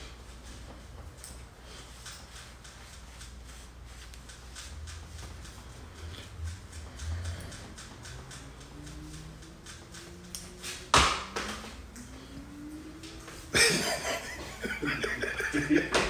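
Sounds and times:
man laughing loudly: 13.5 - 16.0.

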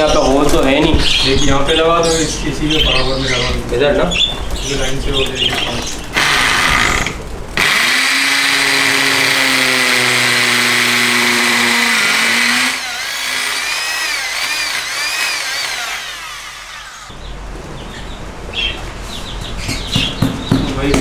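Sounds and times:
power drill drilling: 6.2 - 17.1.

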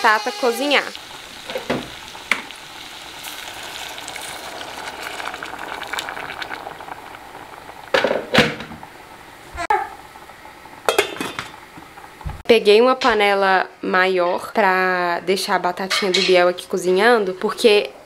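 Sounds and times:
potatoes sizzling in oil: 0.0 - 13.4
water pouring into pan: 0.6 - 9.2.

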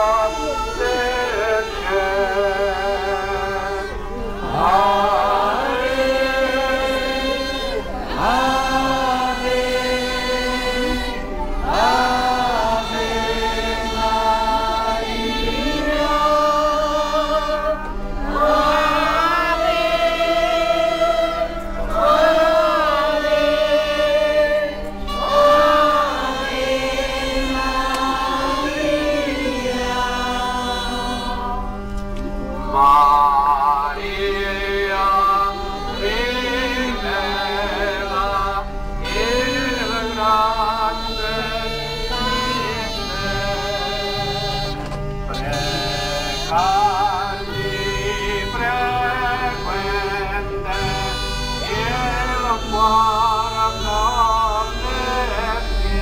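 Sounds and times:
crowd singing a hymn: 0.0 - 56.0.

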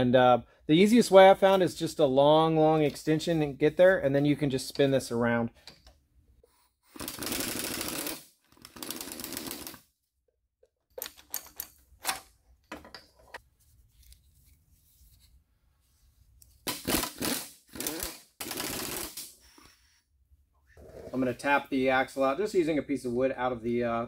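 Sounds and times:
ratchet clicking: 7.0 - 9.8
metal clicks and knocks: 10.9 - 13.4.

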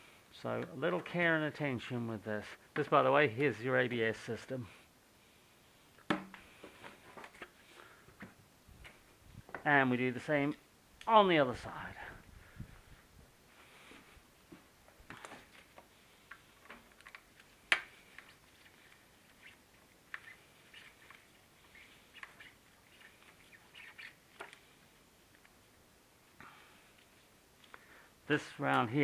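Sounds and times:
small clicks and scrapes: 6.4 - 8.2, 15.0 - 25.6.

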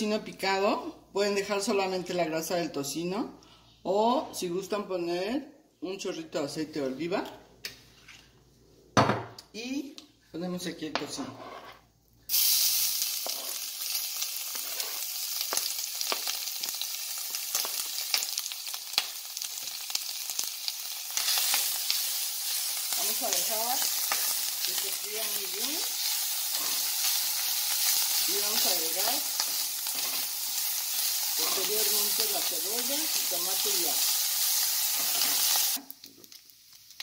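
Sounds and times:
spatula scraping a pan: 11.1 - 11.9, 14.5 - 15.1, 26.4 - 27.1, 29.4 - 30.4, 31.4 - 32.0
bacon sizzling and popping: 12.3 - 37.0.

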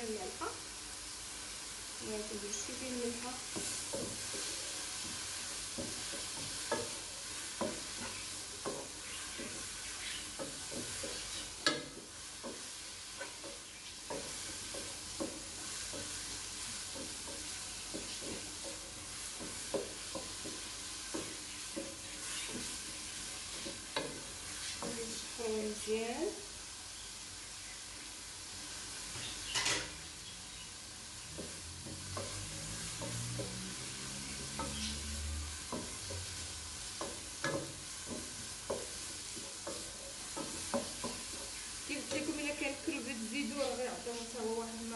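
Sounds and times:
food sizzling: 0.0 - 44.9
wooden spoon scraping a pot: 2.5 - 25.8.

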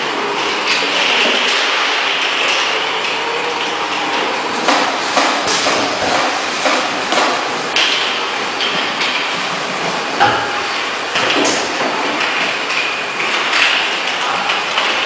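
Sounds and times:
bottling machine hiss and rattle: 0.0 - 15.0
machine knocks and clacks: 4.1 - 15.0.

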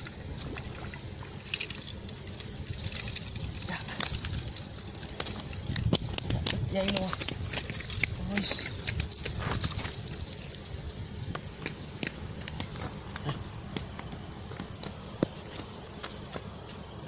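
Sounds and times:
handling clicks and scuffs: 2.9 - 10.6, 11.2 - 17.0.

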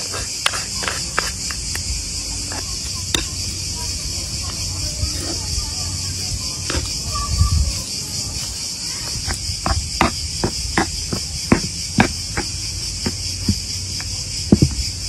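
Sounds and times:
crickets chirring: 0.0 - 15.0
metal spoon scraping in bowl: 2.5 - 7.8.

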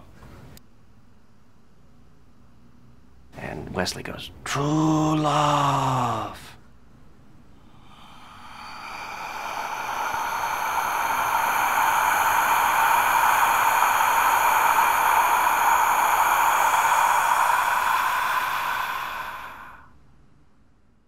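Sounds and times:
loud steady hiss: 7.5 - 20.0.

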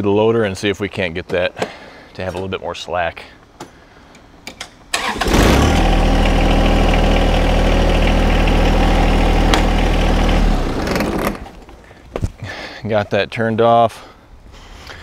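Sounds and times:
tractor diesel engine starting: 4.9 - 11.7.

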